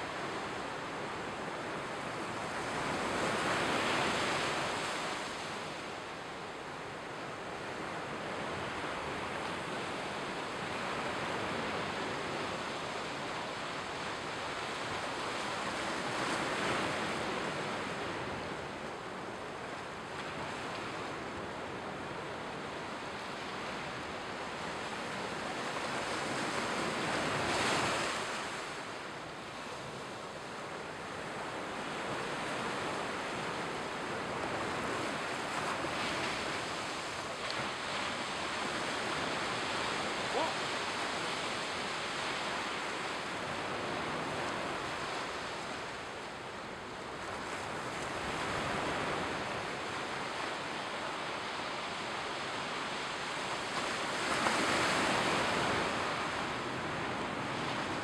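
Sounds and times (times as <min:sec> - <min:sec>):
surf washing onto beach: 0:07.4 - 0:58.0.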